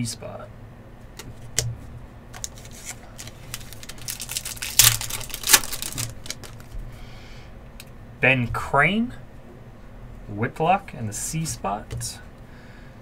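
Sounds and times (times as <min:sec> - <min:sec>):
foil wrapper tearing and crinkling: 0:02.4 - 0:06.7.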